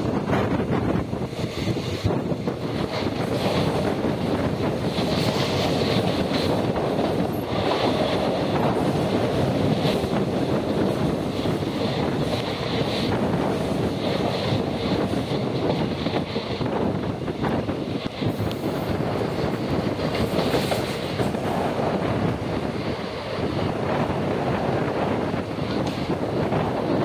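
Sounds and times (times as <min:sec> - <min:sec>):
rumble of train wheels on rail: 0:00.0 - 0:27.0
wheels clicking over rail joints: 0:25.2 - 0:27.0.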